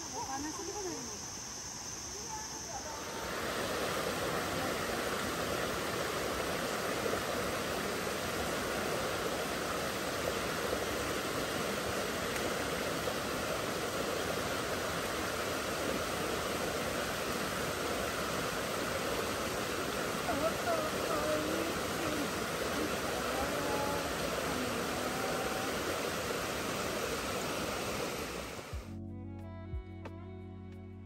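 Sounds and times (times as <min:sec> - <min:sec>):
running water: 0:00.0 - 0:28.9.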